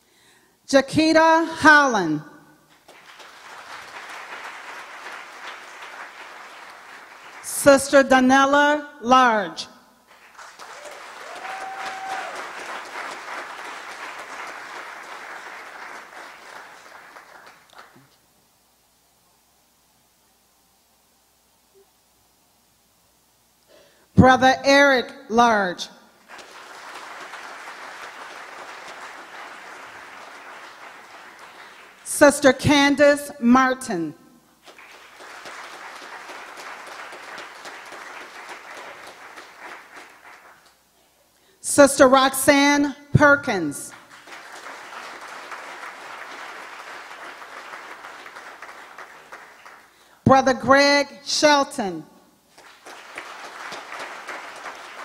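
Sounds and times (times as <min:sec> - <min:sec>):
crowd applauding: 0:02.7 - 0:07.6, 0:10.1 - 0:18.1, 0:26.2 - 0:32.1, 0:34.6 - 0:40.8, 0:43.9 - 0:50.1, 0:52.5 - 0:55.0.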